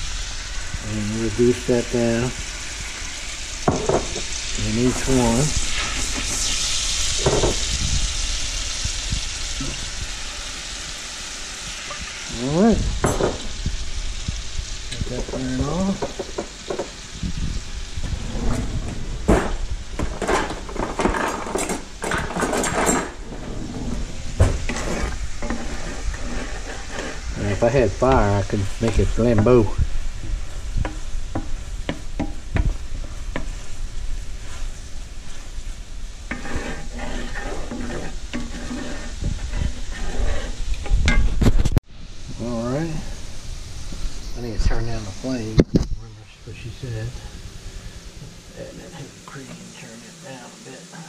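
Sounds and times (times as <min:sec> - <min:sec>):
butter sizzling in a pan: 0:00.0 - 0:51.0
cookware and cabinets clanking: 0:03.7 - 0:04.3, 0:07.2 - 0:07.6, 0:13.0 - 0:13.5, 0:18.1 - 0:25.8
wooden spoon scraping pan: 0:18.0 - 0:33.8, 0:34.4 - 0:41.7
spoon knocking against pan: 0:30.8 - 0:33.5.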